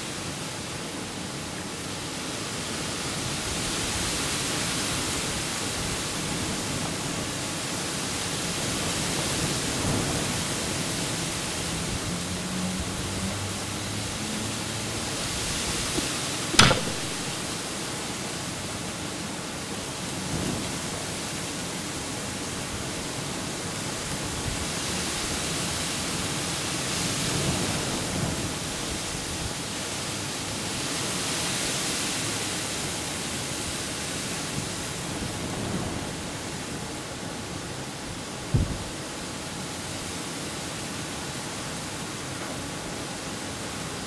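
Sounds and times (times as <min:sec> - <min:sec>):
faint thumps: 0:16.0 - 0:17.3
sharp knock: 0:16.5 - 0:17.4.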